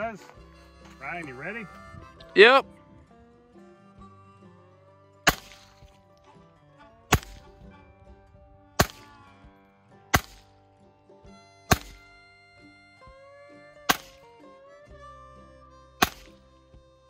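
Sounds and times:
background music: 0.0 - 17.0
pistol shots: 5.3 - 5.9, 7.1 - 7.5, 8.8 - 9.2, 10.1 - 10.5, 11.7 - 12.1, 13.9 - 14.3, 16.0 - 16.4.

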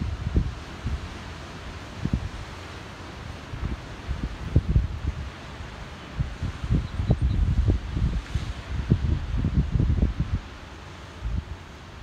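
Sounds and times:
wind buffeting microphone: 0.0 - 1.2, 2.0 - 2.5, 3.4 - 5.4, 6.1 - 10.6, 11.2 - 11.6
faint hiss of surf: 0.0 - 12.0.

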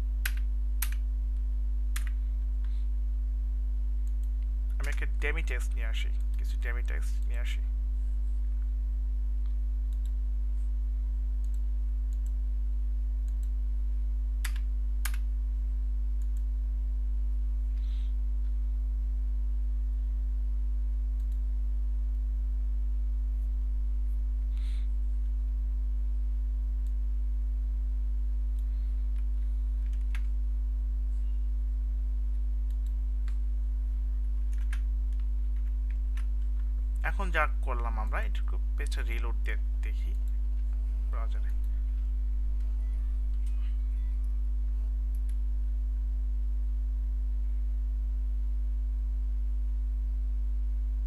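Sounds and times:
low electrical hum: 0.0 - 51.0.

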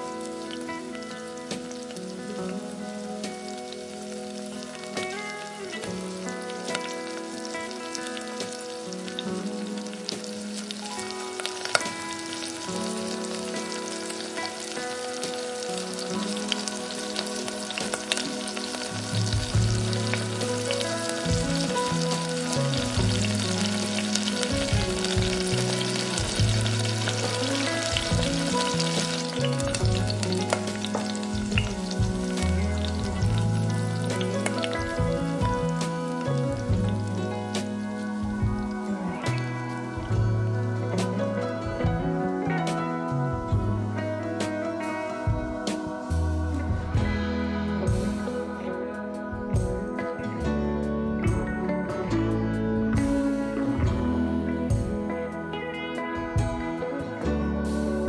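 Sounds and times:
food sizzling in hot oil: 0.0 - 41.8, 42.4 - 48.6
instrumental background music: 0.0 - 58.0.

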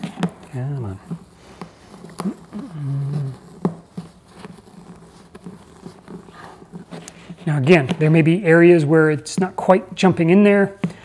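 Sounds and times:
person grunting: 2.2 - 3.4.

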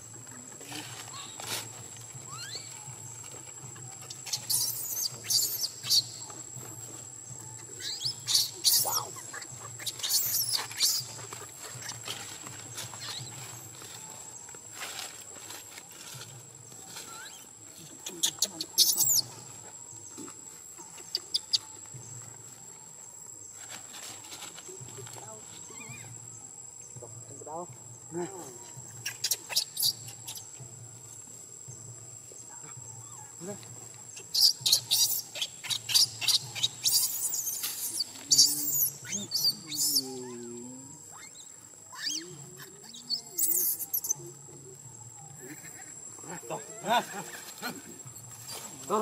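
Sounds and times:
high insect whine: 0.0 - 49.0
baby monkey squealing: 2.3 - 2.8, 4.2 - 6.1, 7.8 - 12.2, 18.2 - 19.3, 29.0 - 30.4, 34.2 - 40.4, 41.1 - 44.2
high-pitched animal squeal: 41.9 - 42.3.

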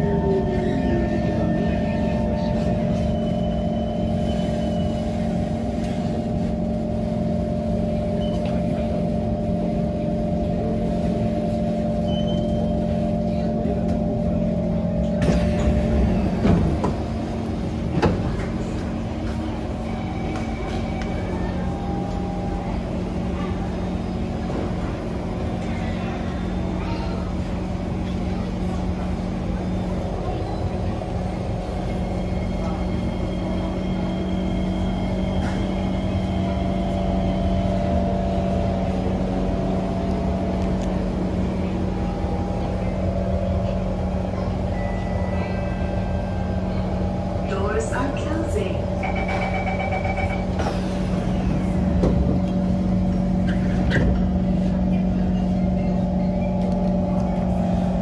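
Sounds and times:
stopped train hum: 0.0 - 58.0
train doors sliding open: 15.0 - 25.8, 30.3 - 42.9, 49.0 - 55.1.

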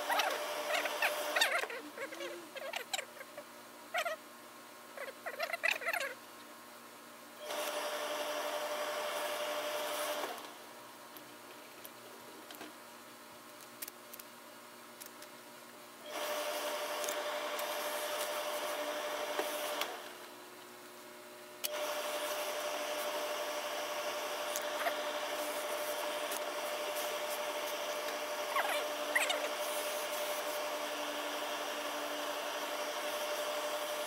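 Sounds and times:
steam press hissing and humming: 7.4 - 10.5, 16.1 - 20.4, 21.6 - 34.0.

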